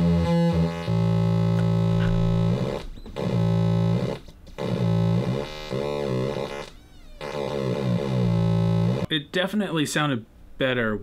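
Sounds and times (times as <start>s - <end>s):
square-wave synth tone: 0.0s - 9.1s.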